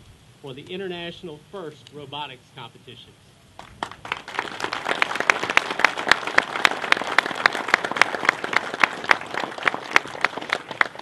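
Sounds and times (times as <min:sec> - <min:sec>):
close sharp claps: 0:03.6 - 0:11.0
crowd applauding: 0:03.6 - 0:11.0.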